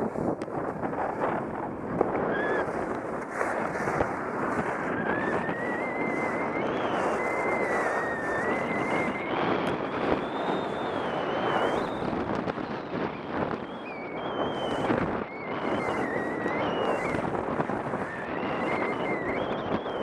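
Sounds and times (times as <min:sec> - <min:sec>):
snowboard edges scraping snow: 0:00.0 - 0:12.3
wind rushing over microphone: 0:00.0 - 0:20.0
thin wavering high whistle: 0:02.2 - 0:02.8, 0:03.4 - 0:20.0.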